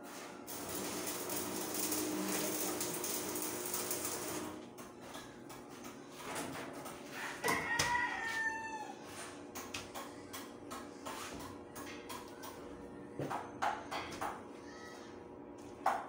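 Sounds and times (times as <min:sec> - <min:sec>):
arc welding crackling: 0:00.0 - 0:04.9
rooster crowing: 0:07.0 - 0:09.2.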